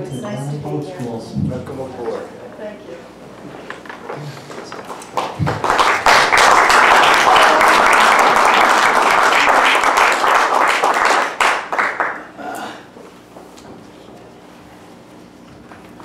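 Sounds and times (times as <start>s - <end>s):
roomful of people applauding: 4.4s - 12.5s.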